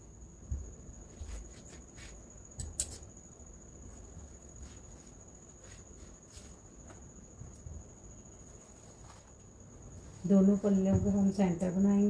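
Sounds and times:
fabric rustling: 0:01.0 - 0:02.4, 0:03.8 - 0:11.4.

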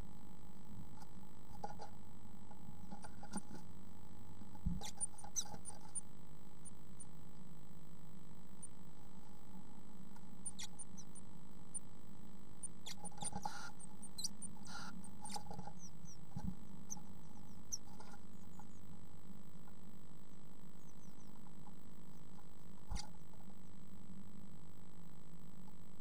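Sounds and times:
electrical hum: 0:00.0 - 0:26.0
birds pecking in wood shavings: 0:04.4 - 0:07.5, 0:08.6 - 0:11.9, 0:12.6 - 0:19.0.

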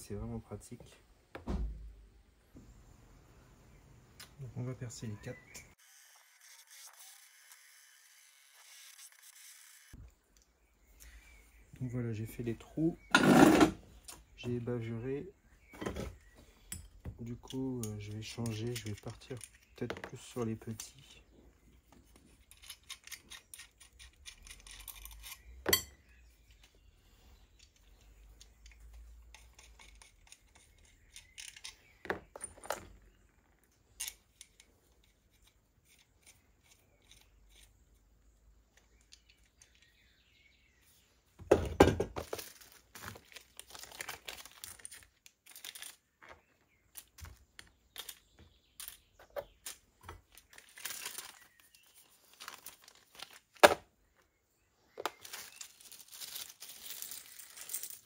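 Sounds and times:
small metal parts clinking: 0:22.1 - 0:26.7, 0:27.5 - 0:38.0, 0:42.3 - 0:51.8, 0:55.1 - 0:58.0
rustling: 0:54.9 - 0:58.0.

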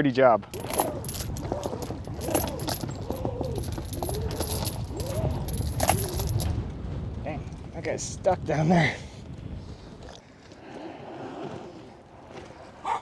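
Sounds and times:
anchor chain clinking and rattling: 0:00.5 - 0:06.6
steady low rumble: 0:00.5 - 0:10.0.

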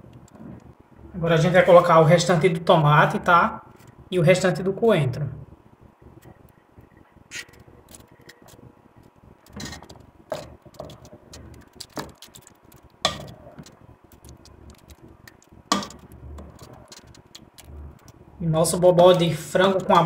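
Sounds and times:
wooden spoon stirring in a pan: 0:09.5 - 0:20.0.

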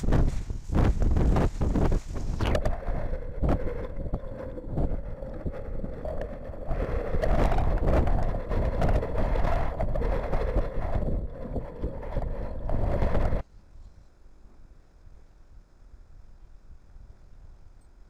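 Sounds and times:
sharp crackles: 0:00.0 - 0:13.4
wind buffeting microphone: 0:00.0 - 0:13.4.

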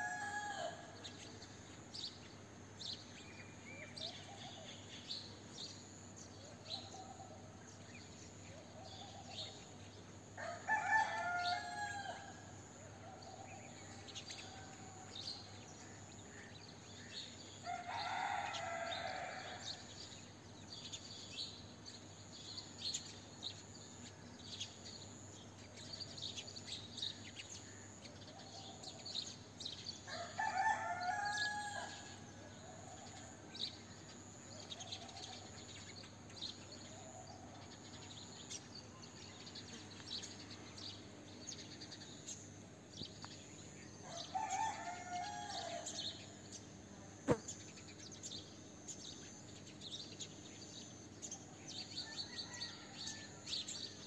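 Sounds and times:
rooster crowing: 0:00.0 - 0:00.9, 0:10.4 - 0:12.4, 0:17.6 - 0:19.7, 0:30.1 - 0:32.3, 0:44.1 - 0:46.0, 0:52.0 - 0:53.5
songbirds chirping: 0:00.0 - 0:54.0.

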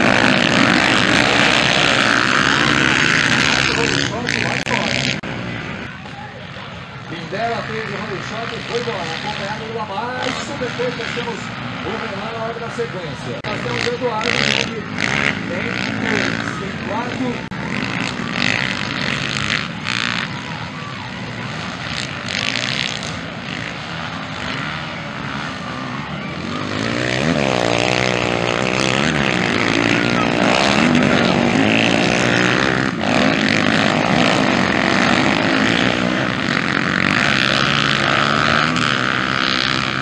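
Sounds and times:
motocross bikes revving past: 0:00.0 - 0:40.0.

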